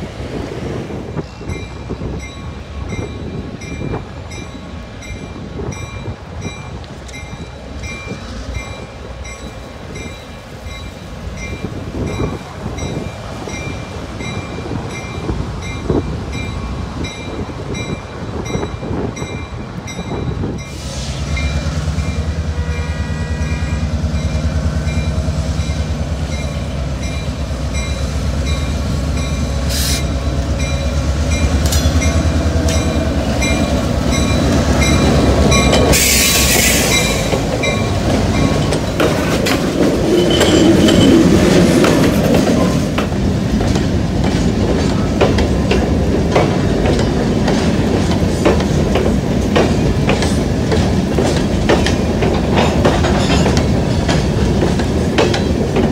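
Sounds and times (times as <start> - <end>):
diesel locomotive engine droning: 0.0 - 55.9
railroad crossing bells ringing: 1.1 - 55.9
loud hiss of air: 20.6 - 21.9, 29.6 - 30.3, 35.9 - 37.3.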